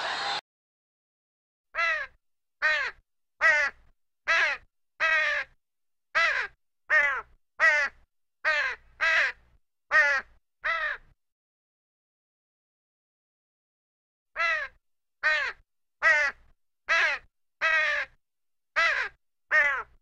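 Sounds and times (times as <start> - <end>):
crow cawing: 1.8 - 5.6, 6.2 - 11.1, 14.4 - 18.2, 18.8 - 20.0.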